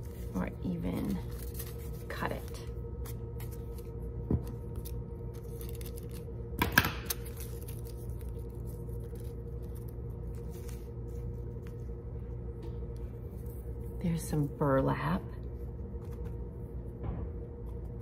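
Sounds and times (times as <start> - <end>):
tissue paper crinkling: 0.0 - 6.4, 7.1 - 12.0
faint steady hum: 0.0 - 18.0.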